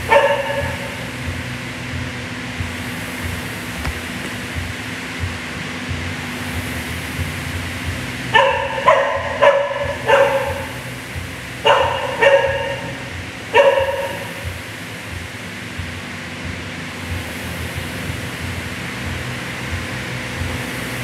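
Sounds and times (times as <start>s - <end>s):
dog barking: 0.0s - 1.1s, 8.3s - 11.0s, 11.6s - 14.6s
rowing machine fan whirring: 0.0s - 21.0s.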